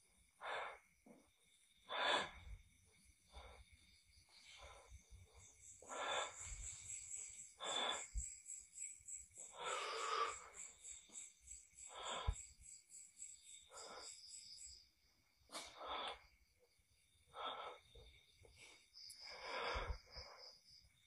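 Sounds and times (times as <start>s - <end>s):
person breathing heavily: 5.8s - 8.3s, 9.4s - 10.7s, 11.8s - 12.5s, 17.3s - 20.6s.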